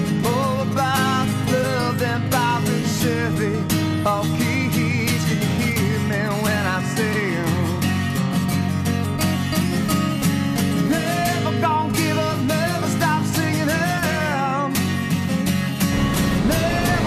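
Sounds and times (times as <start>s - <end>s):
person singing: 0.0s - 7.8s, 10.8s - 14.8s, 15.9s - 17.0s
acoustic guitar song: 0.0s - 17.0s.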